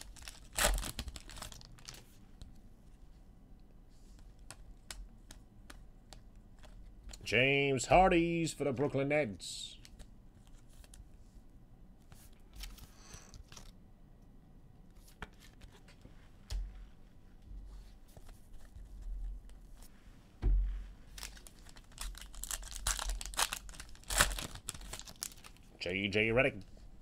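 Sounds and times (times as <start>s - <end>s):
wrappers torn and crinkled: 0.0s - 2.1s, 21.1s - 25.7s
dull thump: 20.4s - 20.9s.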